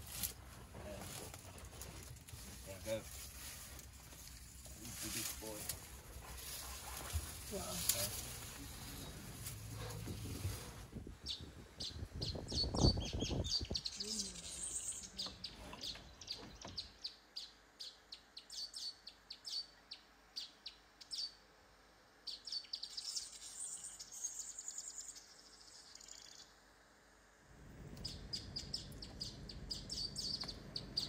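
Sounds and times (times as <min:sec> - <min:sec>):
low rumbling noise: 0:00.0 - 0:13.6
small birds chirping: 0:00.1 - 0:21.4, 0:22.2 - 0:26.6, 0:27.8 - 0:31.0.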